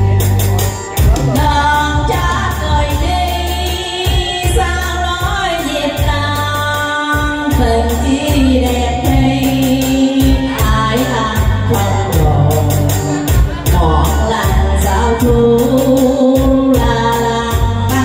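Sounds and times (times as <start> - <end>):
backing music with steady beat: 0.0 - 18.0
woman singing into a microphone: 1.0 - 18.0.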